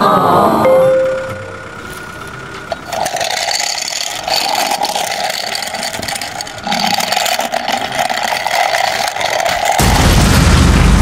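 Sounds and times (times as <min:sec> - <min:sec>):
truck engine running: 0:01.3 - 0:07.3.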